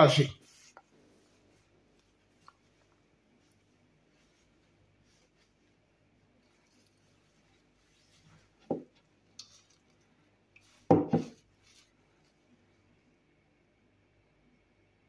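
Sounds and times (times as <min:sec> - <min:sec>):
kitchen items knocking: 0:10.9 - 0:11.4.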